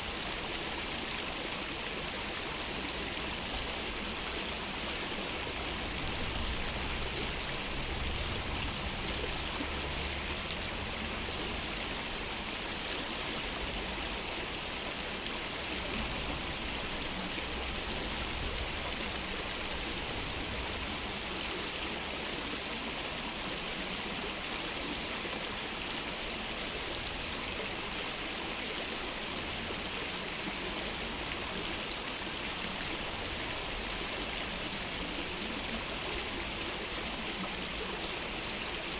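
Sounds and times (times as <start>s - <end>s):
flowing stream rushing: 0.0s - 38.9s.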